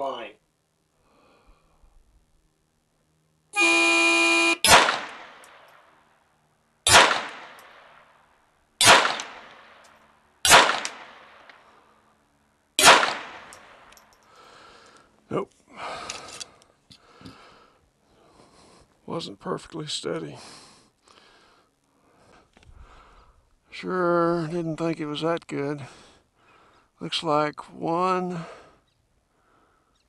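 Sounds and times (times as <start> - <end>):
range horn steady tone: 3.5 - 4.7
pistol shots with echo: 4.6 - 5.8, 6.9 - 8.1, 8.8 - 9.8, 10.4 - 11.5, 12.8 - 13.9.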